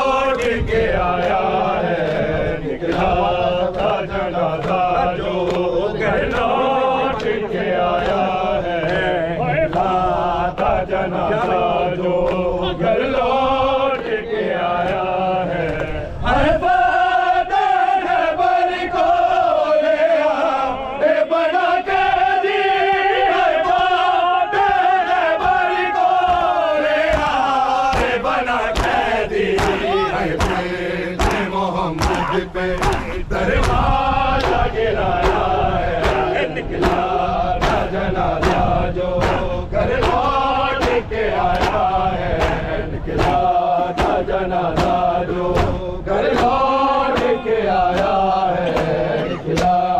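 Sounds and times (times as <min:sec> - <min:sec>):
men chanting lament: 0:00.0 - 0:49.9
hands slapping chests: 0:07.2 - 0:09.1, 0:23.7 - 0:49.8.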